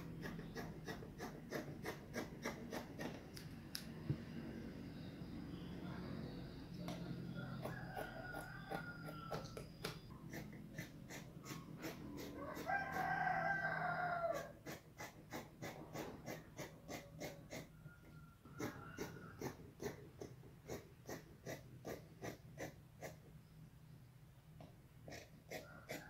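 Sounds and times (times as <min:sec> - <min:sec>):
scissors snipping fabric: 0:00.0 - 0:03.9
rooster crowing: 0:06.2 - 0:09.7, 0:12.3 - 0:14.6, 0:25.5 - 0:26.0.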